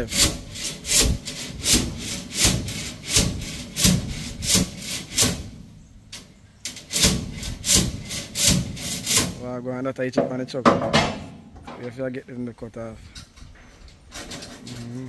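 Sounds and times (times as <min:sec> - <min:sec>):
hand saw cutting steel rebar: 0:00.0 - 0:05.6, 0:06.7 - 0:09.4, 0:14.1 - 0:15.0.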